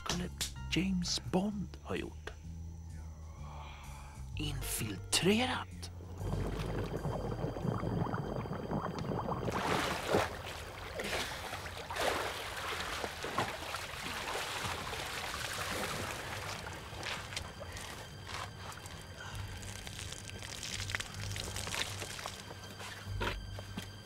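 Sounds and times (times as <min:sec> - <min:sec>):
person swimming splashing: 0:09.4 - 0:18.9.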